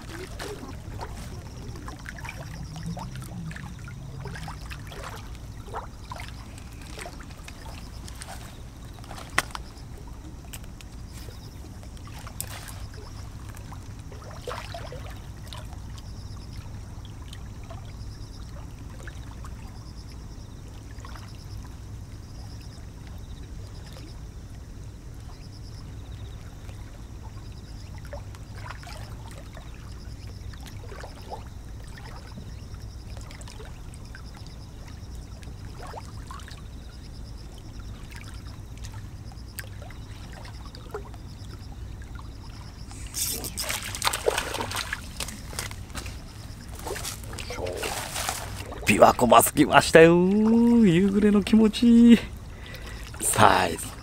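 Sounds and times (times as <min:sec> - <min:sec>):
waves lapping on rocky shore: 0:00.0 - 0:15.8, 0:42.7 - 0:54.0
faint high pulsing chirp: 0:36.1 - 0:54.0.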